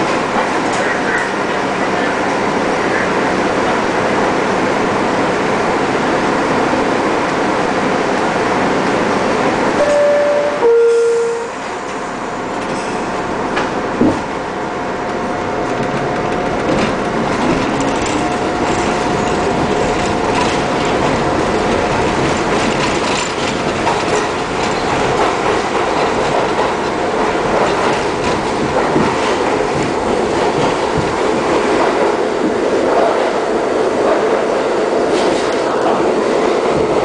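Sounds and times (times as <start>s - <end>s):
train wheels rumbling on rails: 0.0s - 37.0s
clicking over rail joints: 15.6s - 33.4s.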